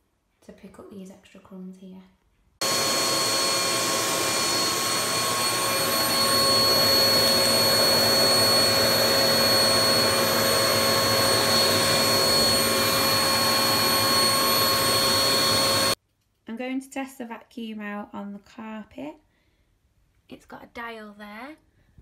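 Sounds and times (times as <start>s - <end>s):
vacuum cleaner running: 2.6s - 16.0s.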